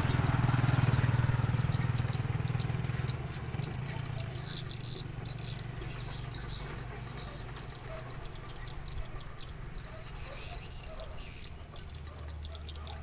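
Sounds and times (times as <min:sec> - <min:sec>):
diesel truck engine pulling away: 0:00.0 - 0:09.9.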